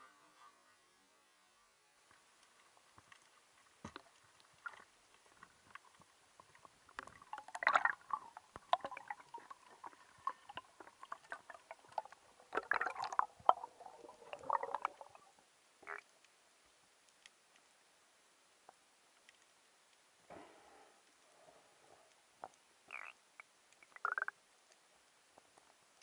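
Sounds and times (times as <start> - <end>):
underwater clicks and knocks: 3.0 - 13.7
gurgling bubbling bursts: 7.2 - 15.4.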